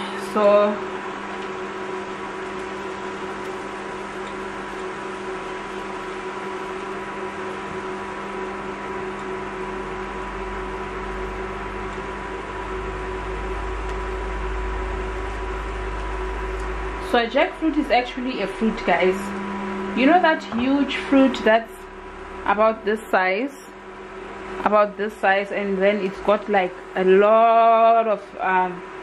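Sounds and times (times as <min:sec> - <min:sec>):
food cooking on electric hob: 0:00.2 - 0:29.0
low rumble: 0:10.4 - 0:24.6.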